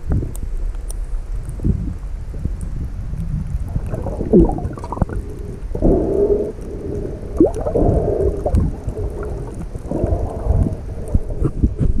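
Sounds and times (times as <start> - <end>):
diver breathing underwater: 3.7 - 12.0.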